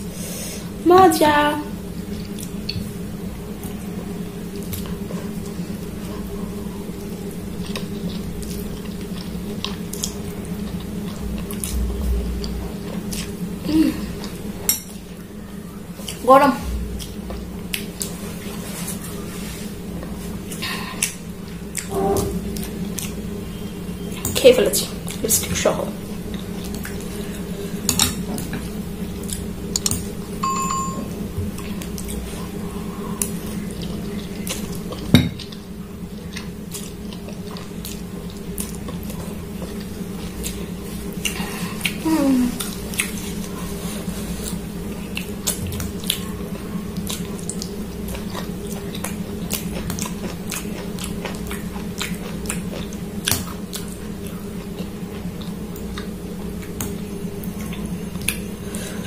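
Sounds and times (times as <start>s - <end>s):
steady low hum: 0.0s - 59.0s
chewing: 4.6s - 13.4s, 22.5s - 23.3s, 26.2s - 30.1s, 31.6s - 58.5s.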